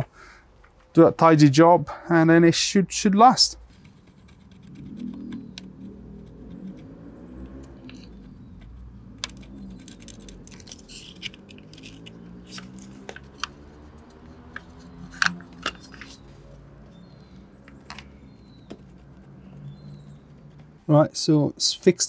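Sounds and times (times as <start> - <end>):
soldering clicks and scratches: 7.4 - 16.2.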